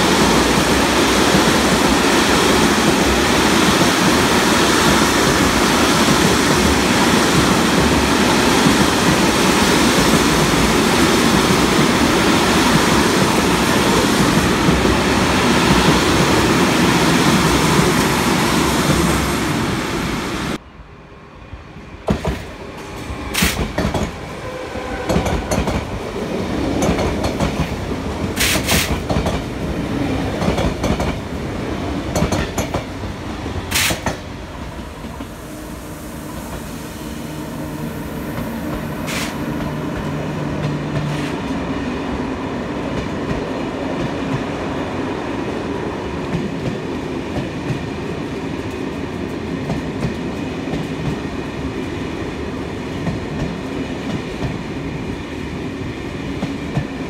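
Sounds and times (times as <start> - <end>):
electric train passing: 0.0 - 57.0.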